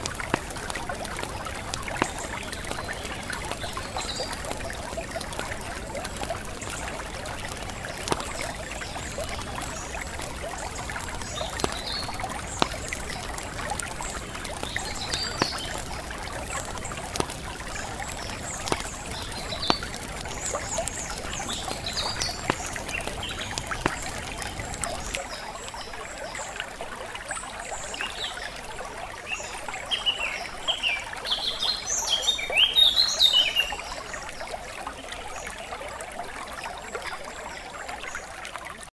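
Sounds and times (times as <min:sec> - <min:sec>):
small birds chirping: 0:00.0 - 0:26.7
water trickling: 0:00.0 - 0:38.9.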